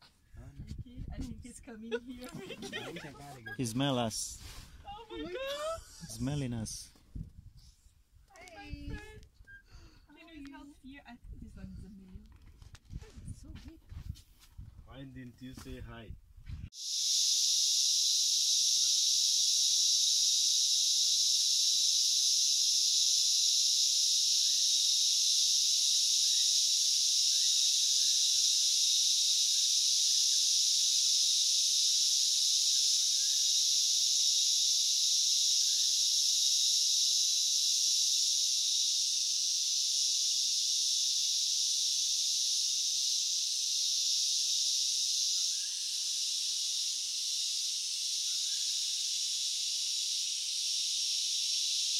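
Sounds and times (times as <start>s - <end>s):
high-pitched insect chorus: 1.4s - 6.9s, 16.7s - 51.9s
faint bird chirps: 22.6s - 36.2s, 43.6s - 49.6s.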